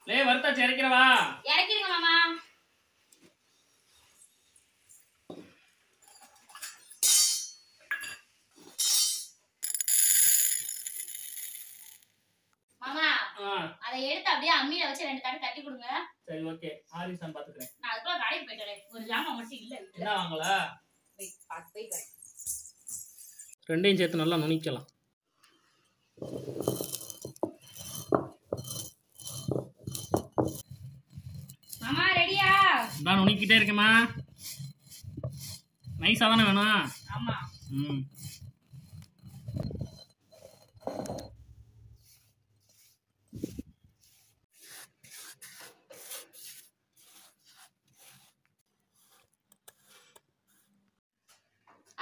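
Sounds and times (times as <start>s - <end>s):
metal pan clinking and scraping: 6.1s - 10.5s, 26.2s - 41.3s
grinding stone crunching seeds: 26.2s - 41.2s.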